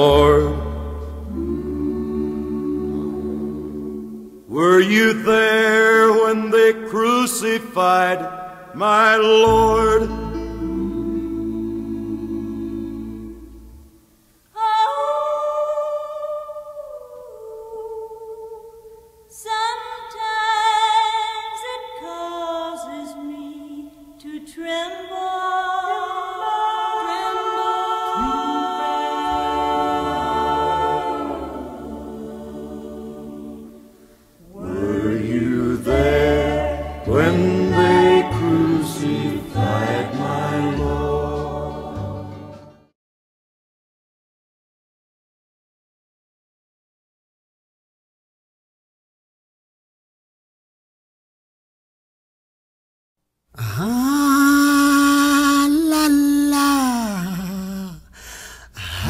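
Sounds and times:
choir singing sustained chords: 0:00.0 - 0:20.1, 0:24.9 - 0:42.9.

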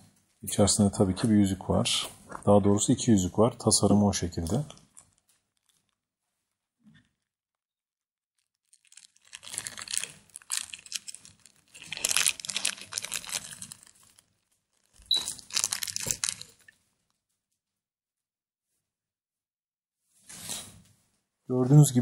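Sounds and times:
cardboard box crinkling and rustling: 0:08.6 - 0:16.6.

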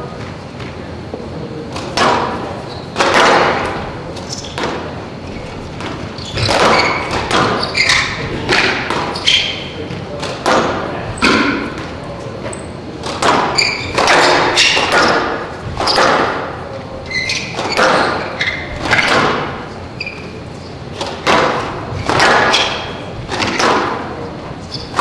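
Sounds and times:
shoes squeaking on court floor: 0:00.0 - 0:25.0
squash ball hitting walls: 0:01.7 - 0:12.1, 0:12.9 - 0:25.0.

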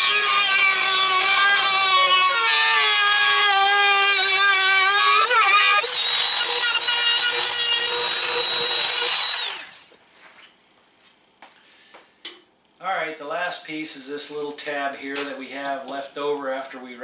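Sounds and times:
router high-pitched whine: 0:00.0 - 0:09.8.

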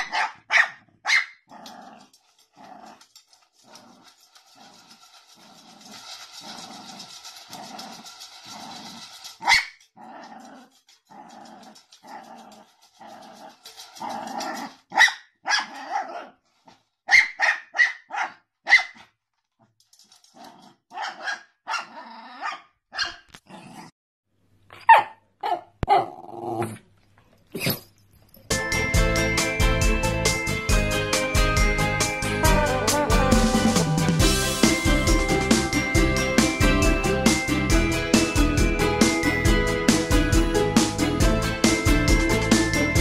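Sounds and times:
dog yapping: 0:00.0 - 0:01.4, 0:09.4 - 0:09.8, 0:14.9 - 0:16.3, 0:17.1 - 0:19.0, 0:20.9 - 0:23.3, 0:24.7 - 0:26.2
dog growling: 0:01.5 - 0:09.3, 0:10.0 - 0:14.8, 0:21.8 - 0:22.5, 0:25.9 - 0:26.8.

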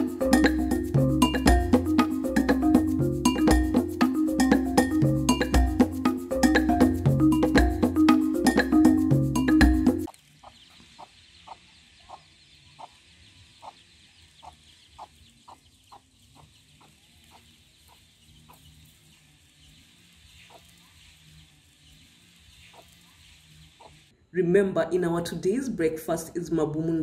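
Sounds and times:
hen clucking softly: 0:10.1 - 0:19.0, 0:20.4 - 0:21.2, 0:22.6 - 0:24.0.

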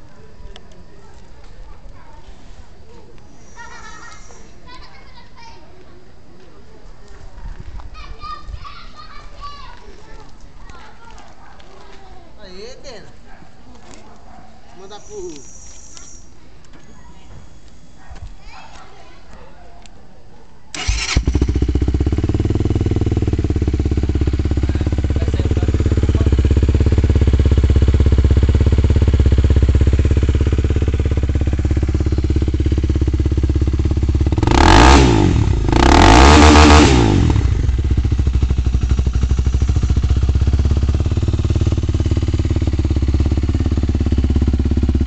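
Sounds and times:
motorcycle engine idling: 0:20.8 - 0:45.0
motorcycle throttle blips: 0:20.8 - 0:45.0.

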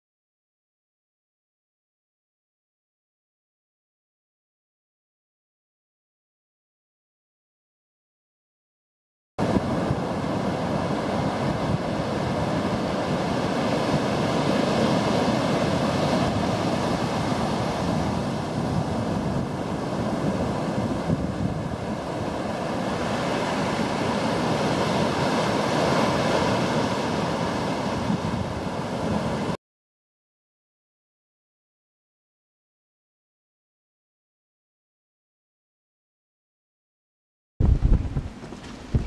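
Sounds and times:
wind buffeting microphone: 0:09.4 - 0:29.6, 0:37.6 - 0:39.0.

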